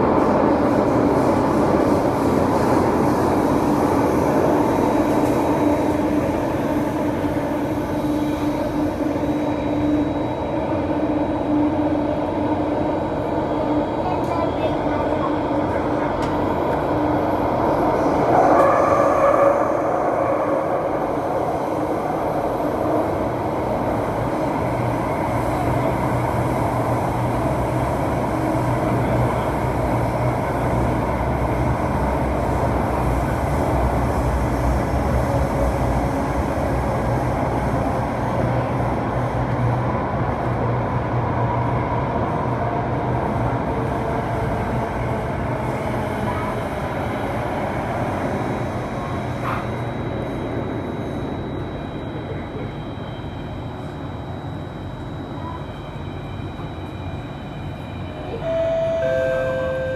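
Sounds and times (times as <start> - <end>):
train wheels rumbling on rail: 0.0 - 59.2
thin high tone: 58.3 - 59.9.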